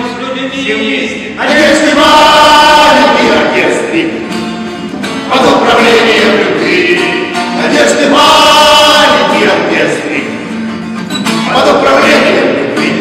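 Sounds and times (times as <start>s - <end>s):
acoustic guitar: 0.0s - 13.0s
men singing together: 1.2s - 4.4s, 5.2s - 10.4s, 11.4s - 13.0s.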